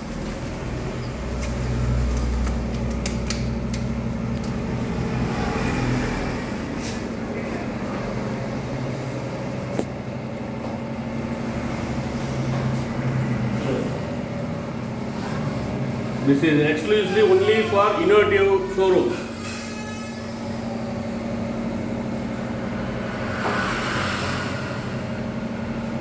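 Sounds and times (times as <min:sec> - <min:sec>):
low mechanical hum: 0:00.0 - 0:26.0
sharp clicks and knocks: 0:01.4 - 0:04.6.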